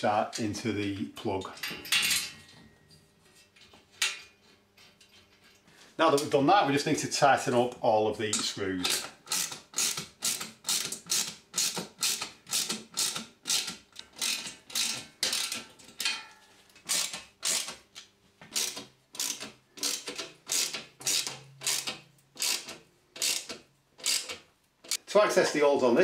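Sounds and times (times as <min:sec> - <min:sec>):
ratchet clicking: 0:08.9 - 0:15.6, 0:16.9 - 0:17.8, 0:18.5 - 0:25.0.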